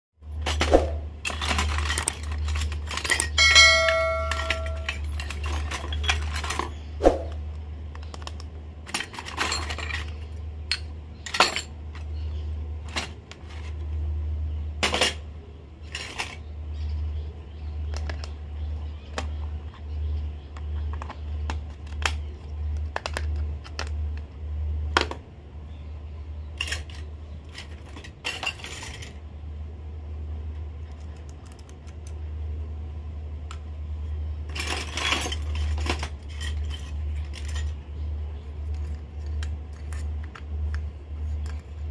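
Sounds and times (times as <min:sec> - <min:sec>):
steady low hum: 0:00.2 - 0:41.9
toy utensils clinking and clattering: 0:01.2 - 0:06.8, 0:08.2 - 0:12.1, 0:15.8 - 0:16.5, 0:26.6 - 0:29.2, 0:34.5 - 0:37.9, 0:38.5 - 0:41.9.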